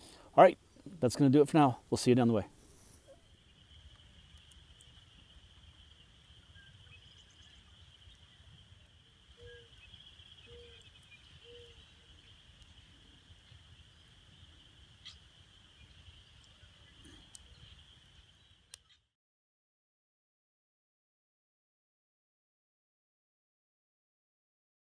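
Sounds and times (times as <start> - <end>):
wood fire popping: 0.0 - 19.0
distant frogs chorus: 2.5 - 19.1.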